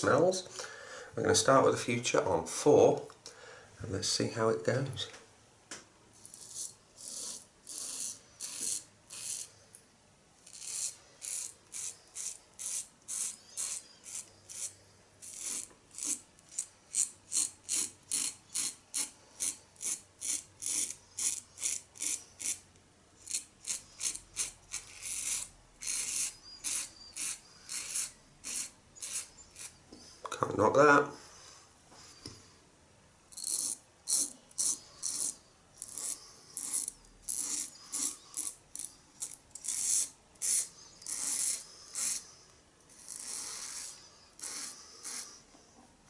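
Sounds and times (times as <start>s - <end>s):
razor scraping through stubble: 6.2s - 9.6s, 10.4s - 22.6s, 23.2s - 29.8s, 33.4s - 45.4s.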